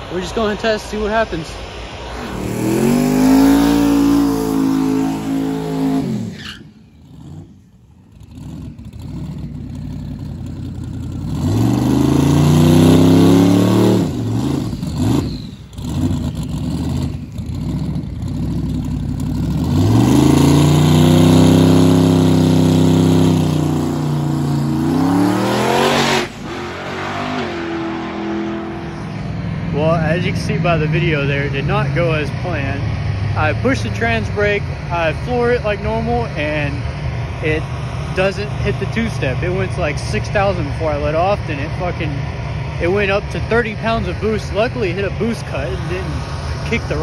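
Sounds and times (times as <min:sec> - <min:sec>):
truck engine revving hard: 0:02.1 - 0:10.3, 0:10.9 - 0:47.0.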